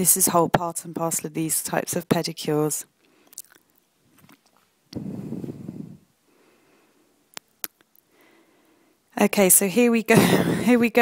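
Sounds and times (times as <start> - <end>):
soft low rustle: 4.0 - 6.1.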